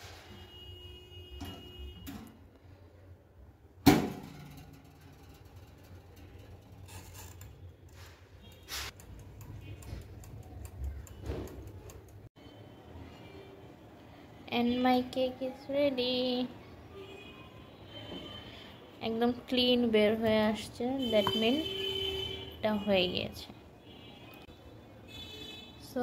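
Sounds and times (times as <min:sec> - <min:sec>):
timer dial clicking and ticking: 0:08.9 - 0:12.3.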